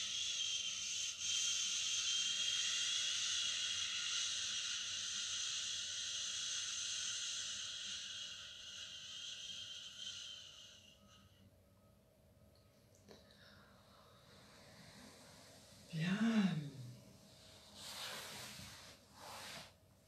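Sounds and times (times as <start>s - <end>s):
woman exhaling shhh: 0.0s - 11.3s, 17.7s - 19.7s.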